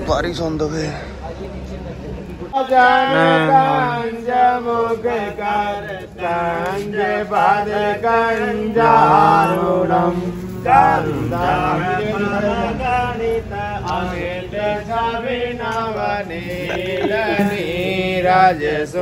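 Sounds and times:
man chanting: 2.6 - 4.2, 16.4 - 19.0.

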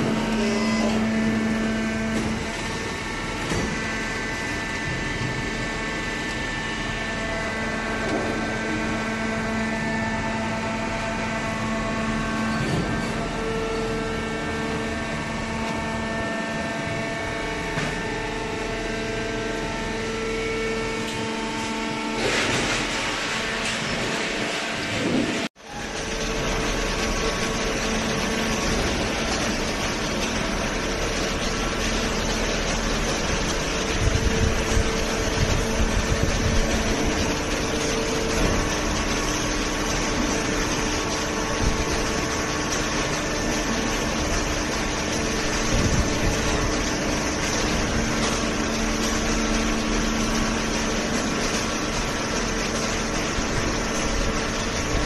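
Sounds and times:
low churning of machinery: 0.0 - 55.0
mechanical hum of motors: 0.0 - 55.0.

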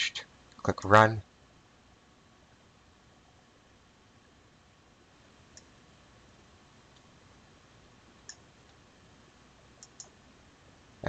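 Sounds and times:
faint computer mouse clicks: 9.8 - 10.2.

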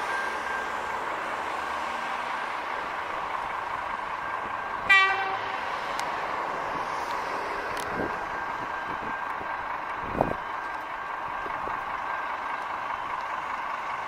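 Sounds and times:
train horn blast: 4.9 - 5.6.

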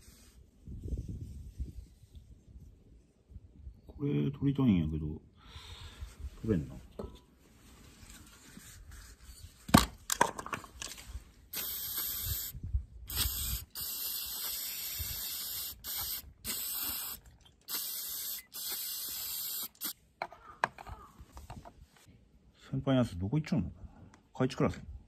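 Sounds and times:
aerosol spray hissing: 11.6 - 20.0.

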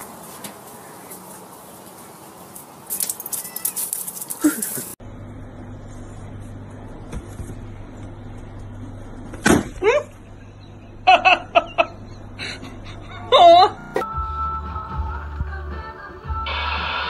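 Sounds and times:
person laughing: 4.4 - 5.0, 11.0 - 13.8.

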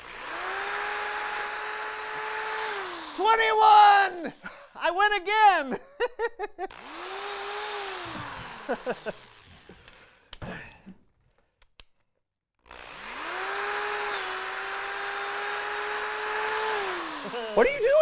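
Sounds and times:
electric drill motor whine: 0.0 - 3.2, 6.7 - 10.1, 12.7 - 18.0.

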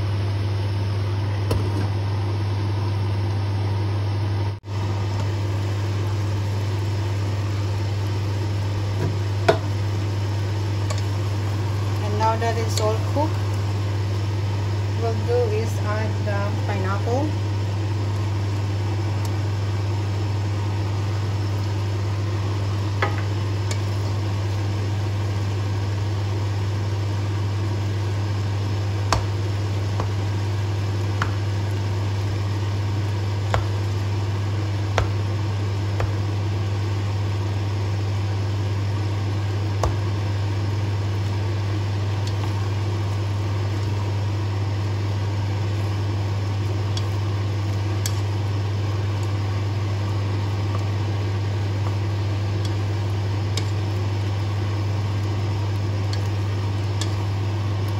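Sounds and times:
kitchen appliance humming: 0.0 - 57.9.

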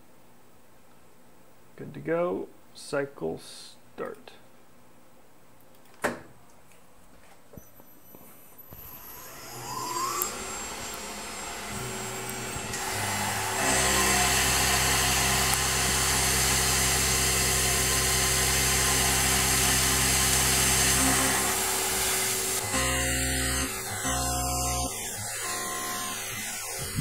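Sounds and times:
spindle whine spinning up: 7.7 - 27.0
milling machine hum with hiss: 8.8 - 27.0.

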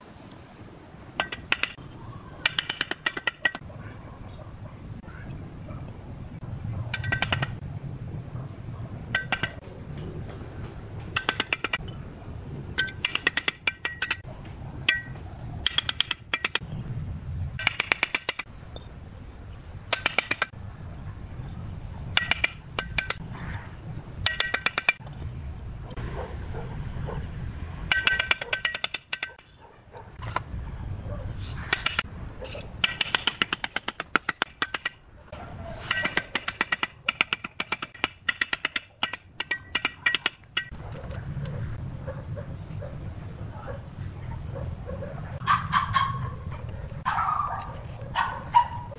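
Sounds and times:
bricks and trowel clinking: 6.9 - 7.6, 12.8 - 14.2, 24.2 - 25.2, 27.9 - 29.4, 35.8 - 40.7.

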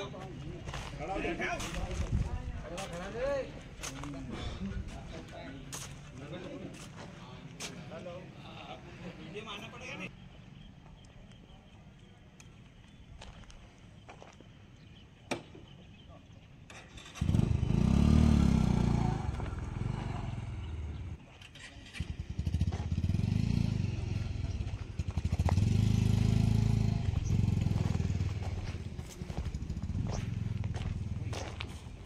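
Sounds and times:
motorcycle engine running: 17.2 - 32.0.

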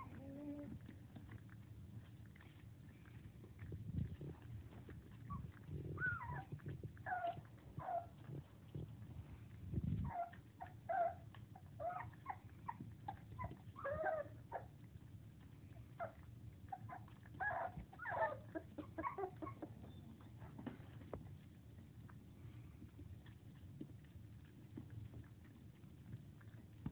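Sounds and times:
puppies whining and squeaking: 0.0 - 9.0, 9.6 - 21.2.

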